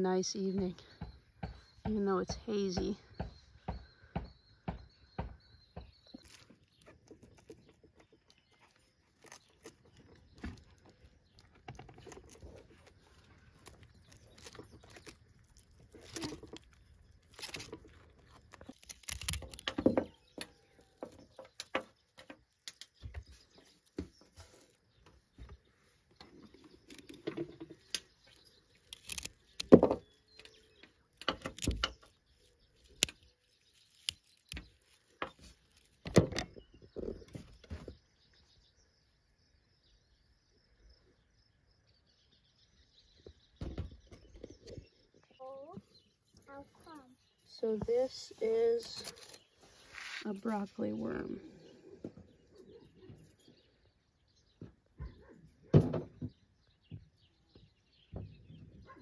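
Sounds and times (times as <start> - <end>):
broccoli stems snapping: 5.9 - 20.6, 26.6 - 36.6, 48.8 - 49.6.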